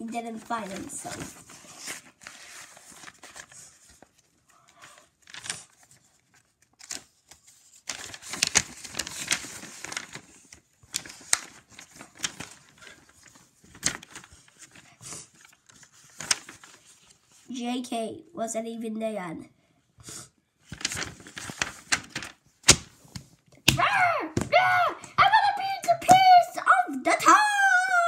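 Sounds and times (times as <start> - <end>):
paper pages rustling: 0.0 - 17.5, 20.6 - 23.8
paper snaps: 6.7 - 10.2, 13.7 - 14.3, 20.7 - 25.1.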